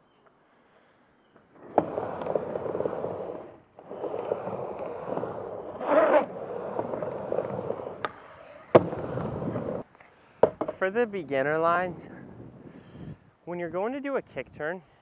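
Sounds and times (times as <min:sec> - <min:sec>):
skateboard wheels rolling: 0:01.3 - 0:09.9
skateboard wheels scraping sideways: 0:01.5 - 0:09.9.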